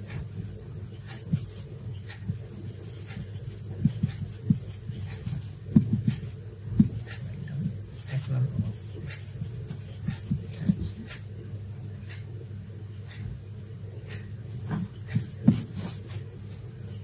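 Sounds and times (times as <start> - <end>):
marker scratching on whiteboard: 0.9 - 11.2, 14.1 - 16.6
pen tapping on board: 1.1 - 7.3, 15.1 - 16.2.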